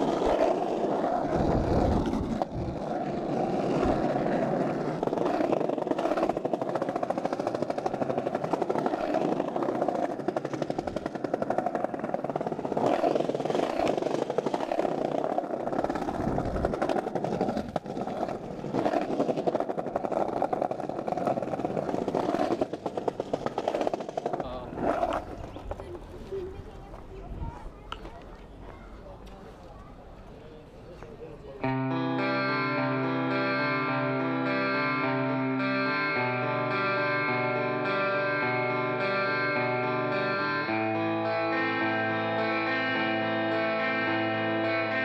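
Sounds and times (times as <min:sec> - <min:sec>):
skateboard wheels rolling: 0:00.0 - 0:31.7.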